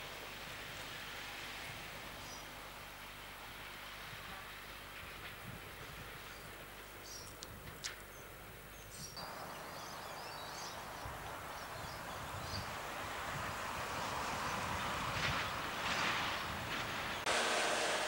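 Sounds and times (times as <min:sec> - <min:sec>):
distant diesel locomotive approaching: 0:00.0 - 0:07.0, 0:09.2 - 0:18.0
faint outdoor background noise: 0:00.0 - 0:18.0
birds chirping: 0:06.2 - 0:15.7.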